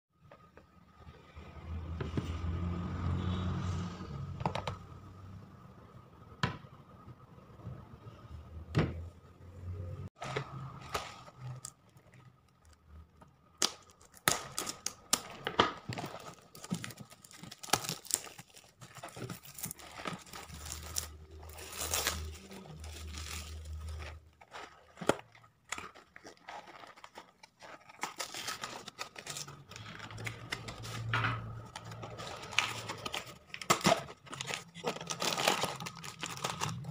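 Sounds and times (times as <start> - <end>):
cardboard crinkling and tearing: 10.2 - 36.9.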